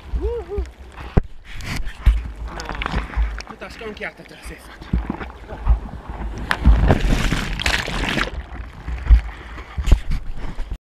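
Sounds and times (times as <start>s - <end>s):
surf rushing and sloshing: 0.0s - 10.8s
low thumps: 4.8s - 10.1s.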